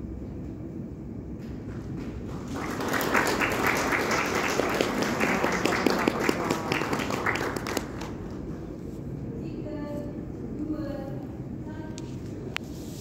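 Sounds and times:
audience applauding: 1.7 - 8.7.

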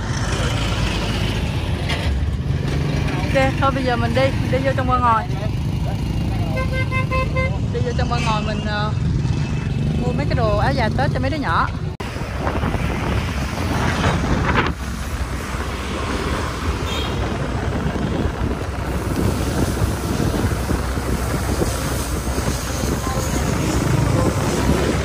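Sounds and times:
wind buffeting microphone: 10.2 - 25.0.

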